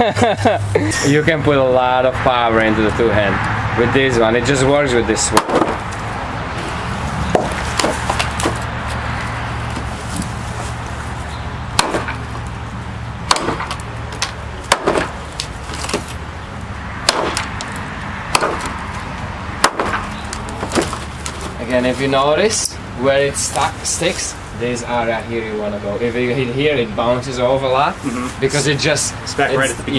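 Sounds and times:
knife chopping into log: 5.4s - 5.8s, 7.3s - 8.6s, 11.8s - 12.2s.

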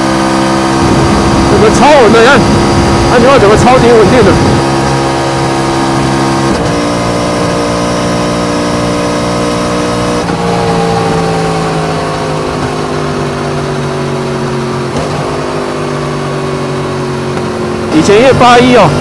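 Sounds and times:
motorcycle engine cruising: 0.0s - 19.0s
wind rush: 0.6s - 6.6s.

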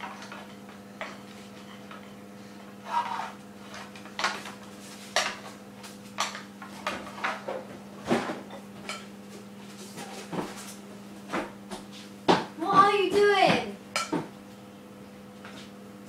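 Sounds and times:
spoon scraping mixing bowl: 2.8s - 4.0s.

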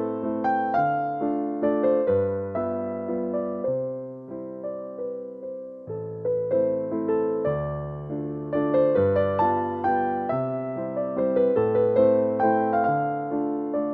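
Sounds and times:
slow piano music: 0.0s - 13.9s.

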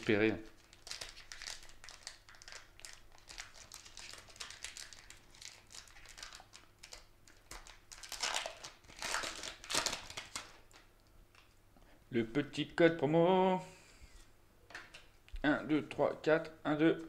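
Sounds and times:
foil wrapper crinkling: 0.5s - 10.9s.

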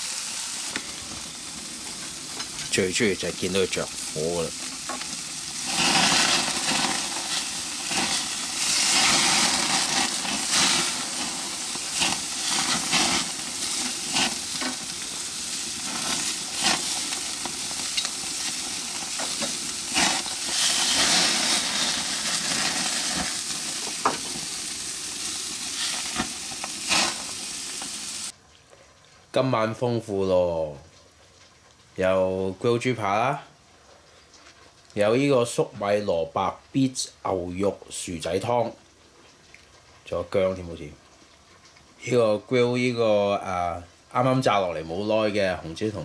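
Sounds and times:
meat sizzling on a grill: 0.0s - 28.4s.

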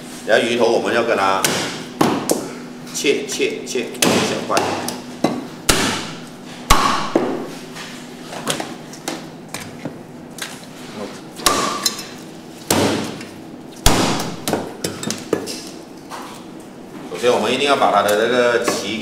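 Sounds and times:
cleaver chopping on wooden block: 1.4s - 2.5s, 4.0s - 7.5s, 11.4s - 11.9s, 12.7s - 13.2s, 13.8s - 15.5s.

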